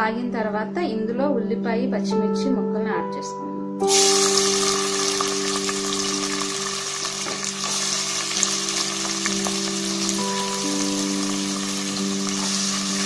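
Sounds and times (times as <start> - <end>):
onions sizzling in hot oil: 3.8 - 13.0.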